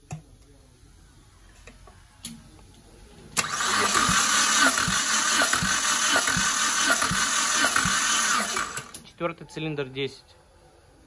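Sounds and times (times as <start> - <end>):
engine cranking with thumps: 3.4 - 9.0.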